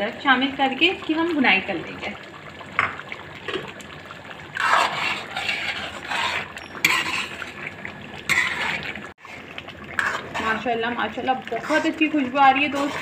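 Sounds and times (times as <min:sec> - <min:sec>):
gravy simmering: 0:00.0 - 0:13.0
metal spoon scraping a pan: 0:04.6 - 0:07.7, 0:08.3 - 0:10.7, 0:11.6 - 0:13.0.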